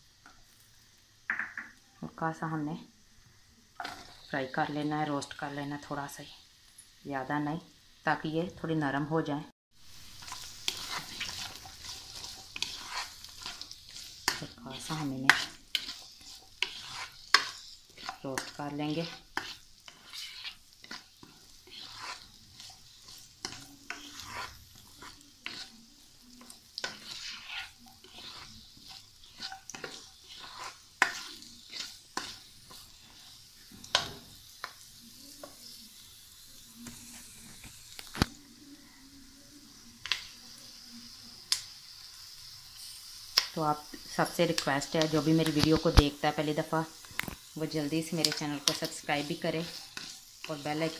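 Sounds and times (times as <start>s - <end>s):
vegetables sizzling in oil: 0.0s - 50.9s
spoon scraping pan: 3.8s - 7.0s, 9.8s - 36.1s, 39.7s - 40.6s, 42.7s - 50.9s.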